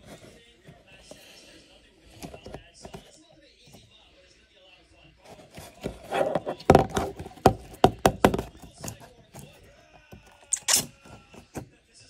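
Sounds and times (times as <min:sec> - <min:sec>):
plastic jar knocking on wood: 0:05.6 - 0:09.0.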